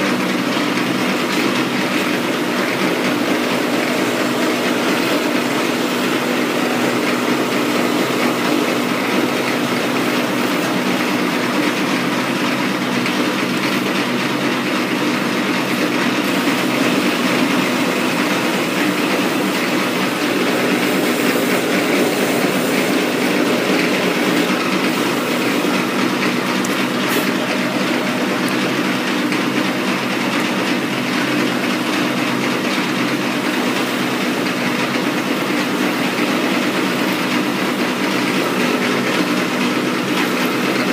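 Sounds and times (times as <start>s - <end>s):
metal lathe cutting: 0.0s - 40.9s.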